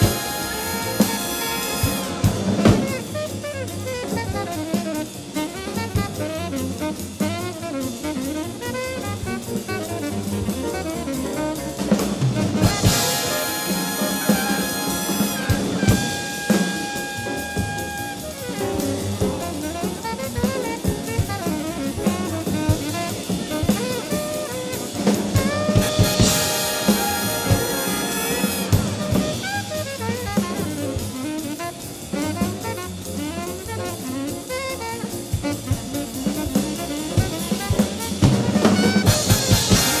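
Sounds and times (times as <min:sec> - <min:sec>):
cymbal crash: 0:00.0 - 0:03.2, 0:25.5 - 0:29.7
big band jazz: 0:00.0 - 0:40.0
drum kit: 0:00.0 - 0:40.0.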